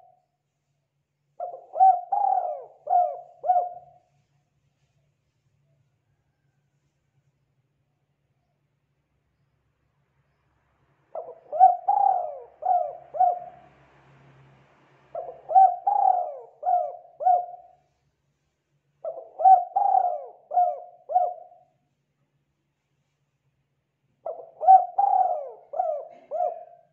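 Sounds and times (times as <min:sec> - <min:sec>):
dove cooing: 0:01.4 - 0:04.1, 0:11.2 - 0:13.7, 0:15.1 - 0:17.8, 0:19.0 - 0:21.7, 0:24.2 - 0:26.9.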